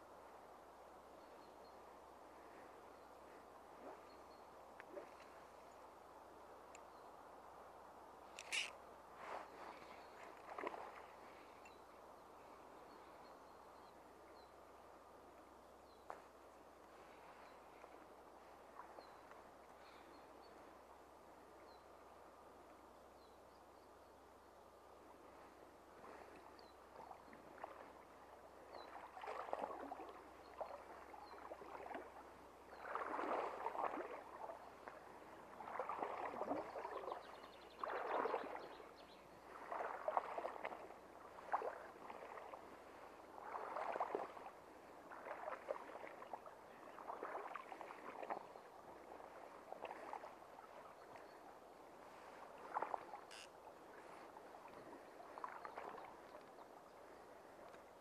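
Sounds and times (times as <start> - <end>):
shallow river water hissing: 0.3 - 22.6, 24.2 - 58.0
water splashing and sloshing: 2.4 - 5.7, 8.3 - 11.6, 16.0 - 20.1, 25.3 - 58.0.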